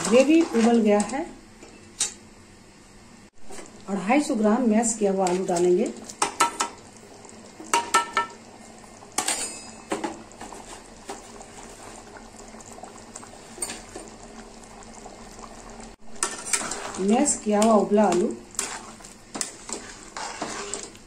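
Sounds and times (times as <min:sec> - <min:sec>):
curry bubbling: 0:03.4 - 0:21.0
spoon clinking against pan: 0:09.2 - 0:10.0.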